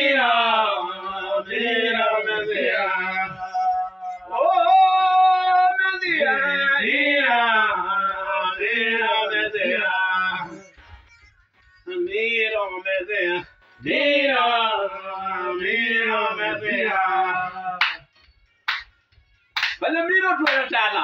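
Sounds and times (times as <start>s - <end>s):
men singing gospel: 0.0s - 10.7s, 11.9s - 18.1s, 19.8s - 21.0s
backing music: 5.9s - 21.0s.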